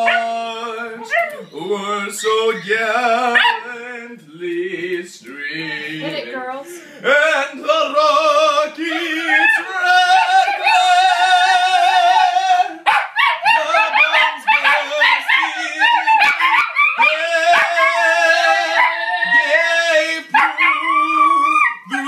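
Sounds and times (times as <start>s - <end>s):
dogs howling: 0.0s - 3.7s, 8.8s - 22.0s.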